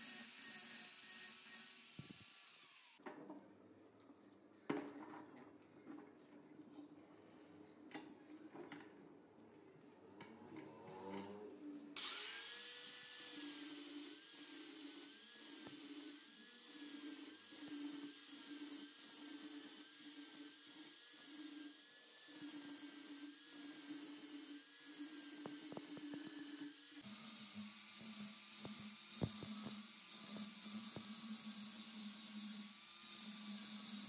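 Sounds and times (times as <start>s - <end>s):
angle grinder grinding steel: 0.0s - 3.0s, 12.0s - 34.0s.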